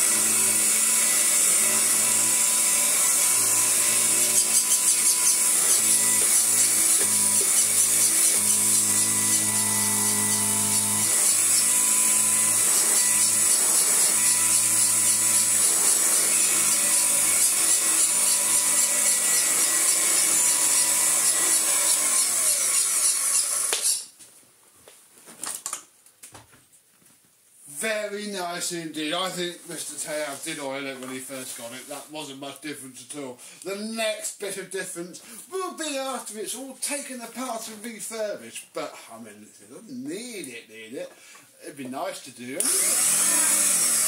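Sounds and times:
vacuum cleaner running: 4.5s - 12.6s, 42.6s - 44.0s.

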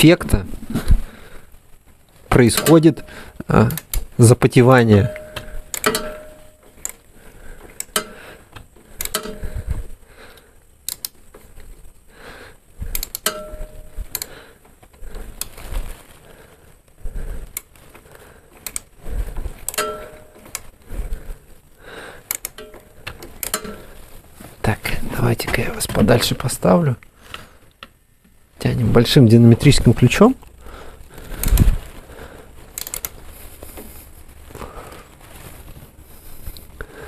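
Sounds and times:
metal hand tools clinking: 5.0s - 6.6s, 19.7s - 20.6s.

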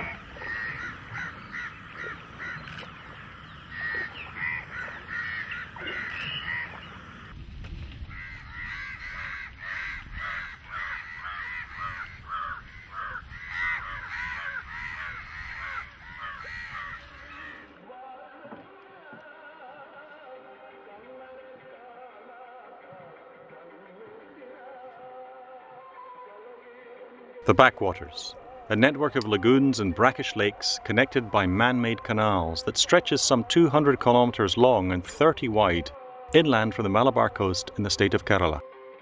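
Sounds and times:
crows cawing: 0.0s - 7.3s, 8.1s - 17.8s.

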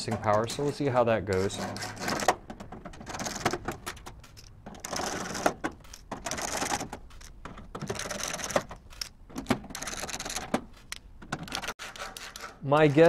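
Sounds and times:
metal-on-metal scraping: 0.0s - 9.1s, 11.6s - 13.0s.

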